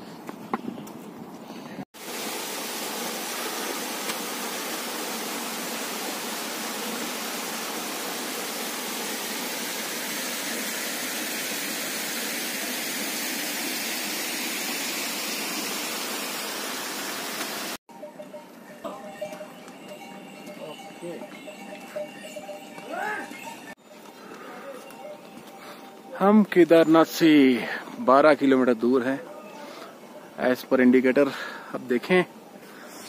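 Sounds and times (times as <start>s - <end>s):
waterfall rushing: 2.0s - 17.8s.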